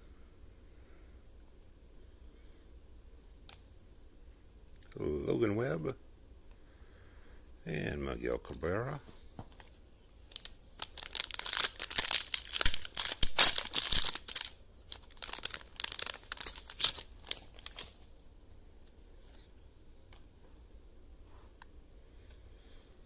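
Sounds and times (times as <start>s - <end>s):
foil wrapper crinkling and tearing: 10.3s - 18.2s.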